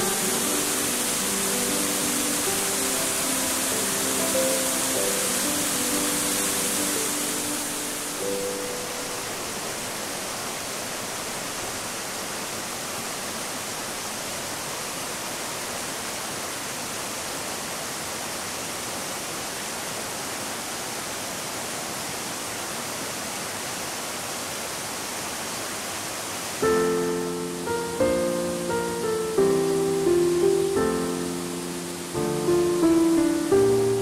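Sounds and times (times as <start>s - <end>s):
piano music: 0.0s - 9.8s, 26.6s - 34.0s
stream water cascading: 0.0s - 34.0s.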